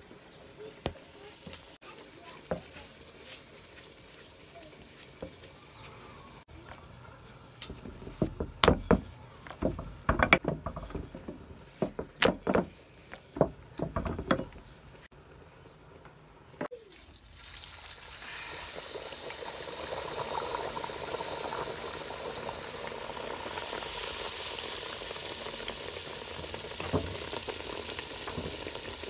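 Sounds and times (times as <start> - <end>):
rolling pin clacking on board: 8.1 - 12.7.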